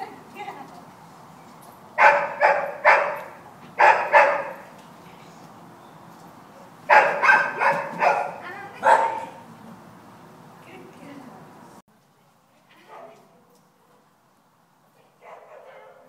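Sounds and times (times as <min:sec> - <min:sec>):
dog barking with echo: 0:02.0 - 0:04.7, 0:06.9 - 0:09.4, 0:15.2 - 0:16.0.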